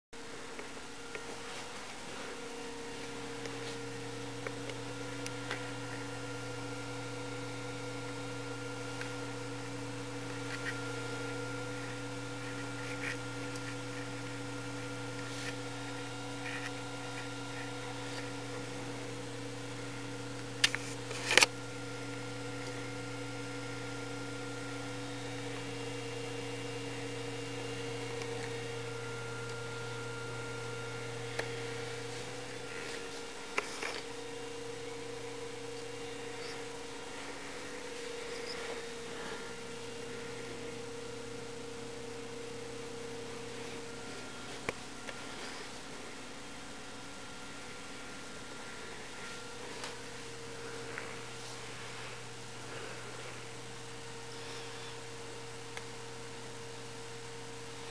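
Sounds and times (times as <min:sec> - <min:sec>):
low electrical hum: 0:00.2 - 0:57.9
clicks: 0:20.3 - 0:22.8.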